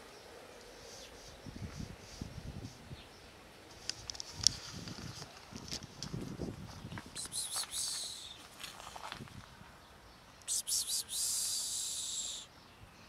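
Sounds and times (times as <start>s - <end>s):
songbird trilling: 7.2s - 8.4s.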